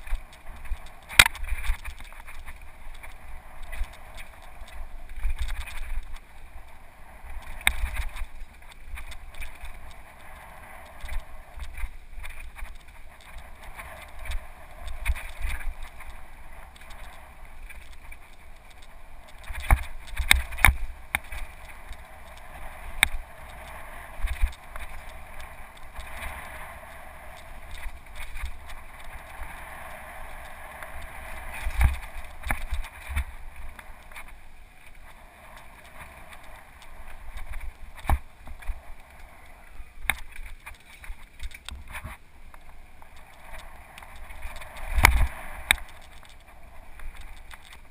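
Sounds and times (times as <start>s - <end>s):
bike tyre rumble: 0.0s - 47.9s
wind rush: 0.0s - 47.9s.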